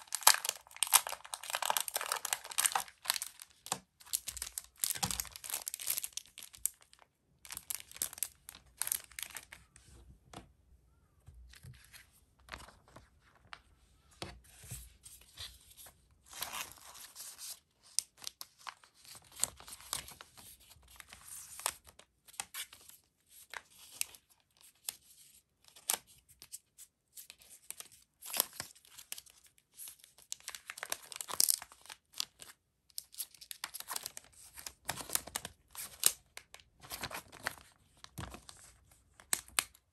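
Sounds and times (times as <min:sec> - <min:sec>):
plastic sleeve crinkling: 0:00.0 - 0:09.8.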